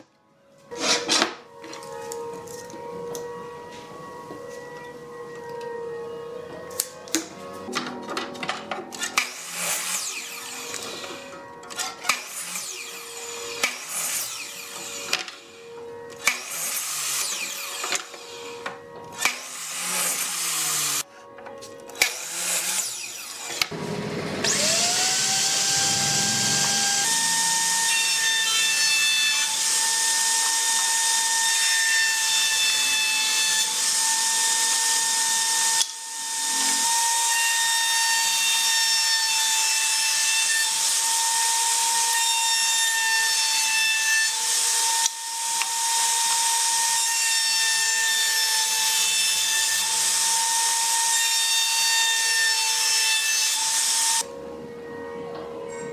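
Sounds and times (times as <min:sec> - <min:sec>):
router high whine: 0:00.7 - 0:07.7, 0:08.9 - 0:21.3, 0:21.9 - 0:43.7.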